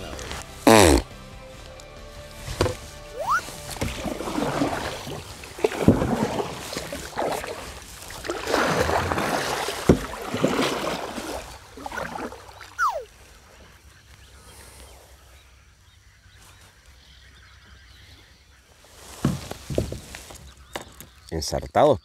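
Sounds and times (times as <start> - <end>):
paddle strokes splashing water: 2.4 - 13.8
falling whistle: 3.2 - 3.5, 12.8 - 13.1.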